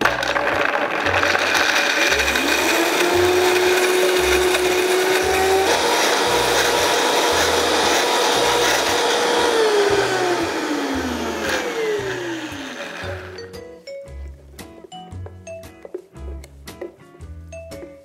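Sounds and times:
blender running: 0.0 - 13.4.

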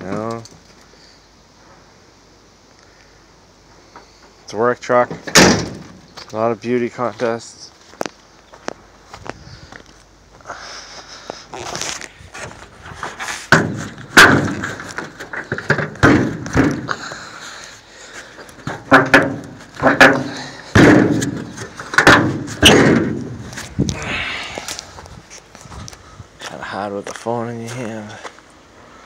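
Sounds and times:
truck hood metal clunks: 13.5 - 17.0, 18.6 - 23.4.

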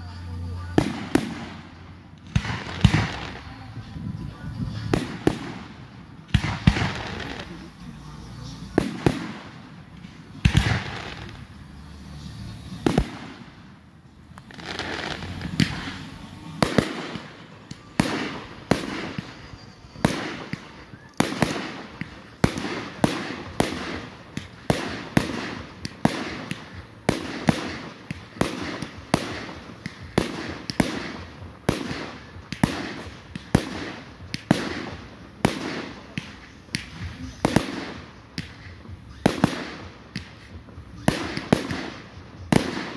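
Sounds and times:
fireworks bursting with sharp bangs: 0.0 - 42.9.

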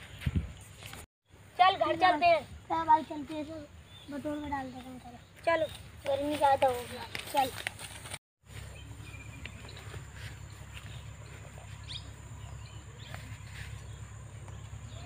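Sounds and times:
bird chirps: 8.6 - 15.0.

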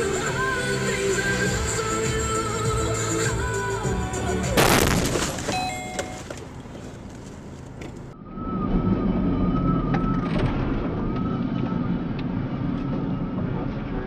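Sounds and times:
road and engine noise: 0.0 - 14.0
vehicle engine rumble in cab: 0.0 - 14.0
short high tones: 5.5 - 6.2
wavering high whine: 8.1 - 14.0.

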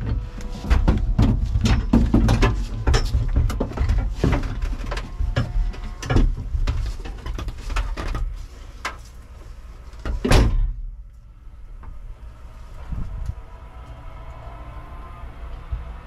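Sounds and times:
knocks and clatter in car cabin: 0.0 - 9.0, 10.0 - 10.8
low steady rumble: 0.0 - 16.0.

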